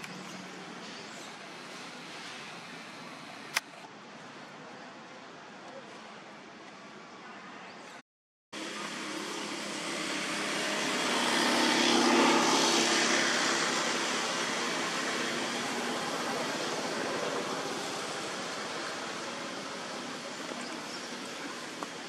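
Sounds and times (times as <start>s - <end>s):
vehicle engine passing by: 8.6s - 21.6s.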